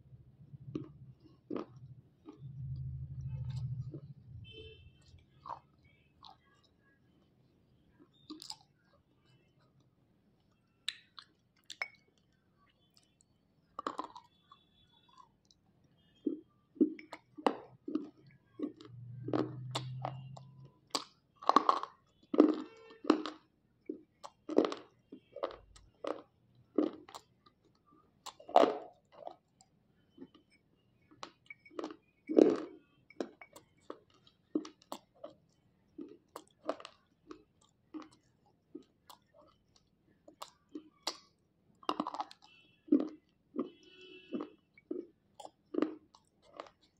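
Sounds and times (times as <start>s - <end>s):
sharp crunches of chewing: 0.6s - 4.2s, 8.0s - 9.4s, 13.8s - 15.6s, 16.2s - 30.4s, 31.0s - 46.9s.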